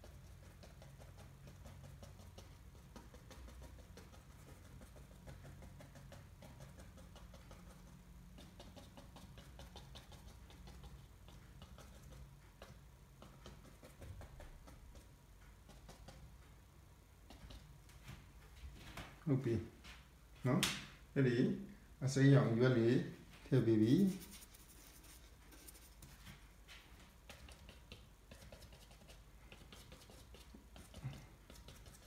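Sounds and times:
paintbrush tapping on paper: 0.0s - 16.6s, 23.6s - 32.0s
low steady hum: 0.0s - 32.0s.

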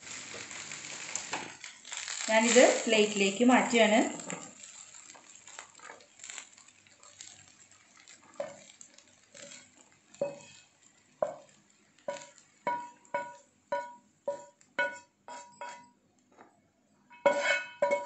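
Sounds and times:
spatula scraping frying pan: 0.0s - 16.0s, 17.1s - 18.0s
spatula knocking against pan: 12.1s - 15.9s, 17.2s - 18.0s.

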